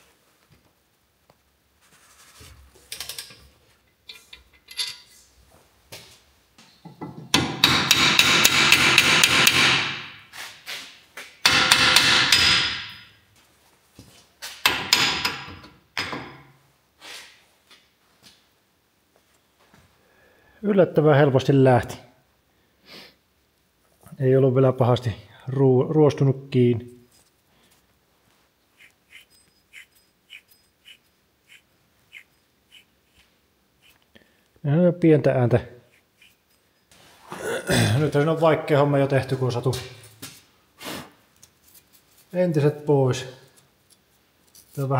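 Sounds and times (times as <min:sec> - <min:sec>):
hammer striking metal: 0:07.0 - 0:10.2, 0:11.4 - 0:13.1, 0:14.6 - 0:16.4
wheel bearing scraping: 0:28.8 - 0:34.0.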